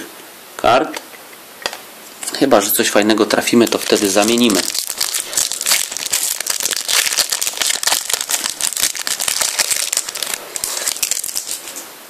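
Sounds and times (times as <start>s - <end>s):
foil packet crinkling: 3.1s - 11.8s.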